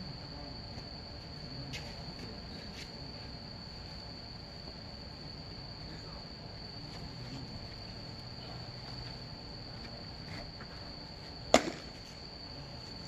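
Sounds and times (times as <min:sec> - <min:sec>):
insects trilling: 0:00.0 - 0:13.0
baseball smacking into glove: 0:11.5 - 0:12.0.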